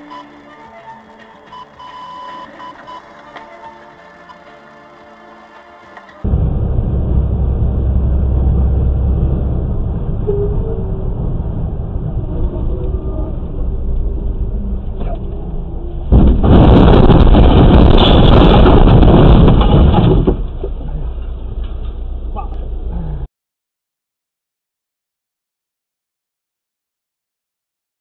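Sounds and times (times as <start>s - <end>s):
loud rushing noise: 5.0s - 20.2s
vehicle road and engine rumble: 6.1s - 23.3s.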